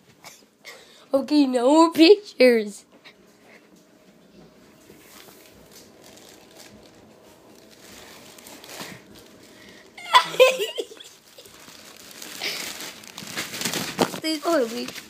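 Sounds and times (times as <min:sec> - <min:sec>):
faint steady hum: 0:00.0 - 0:15.0
person giggling: 0:10.0 - 0:11.6.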